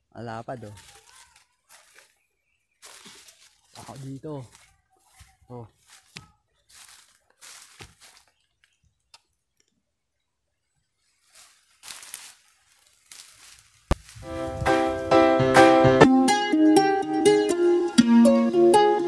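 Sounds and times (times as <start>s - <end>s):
dry leaves crunching: 0.4s - 8.7s, 11.0s - 15.2s
ukulele music: 13.9s - 19.0s.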